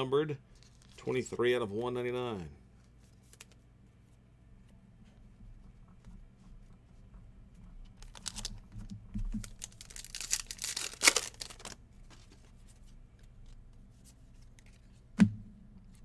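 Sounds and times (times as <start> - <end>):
wrapper tearing and crinkling: 8.0 - 8.6, 9.4 - 12.3.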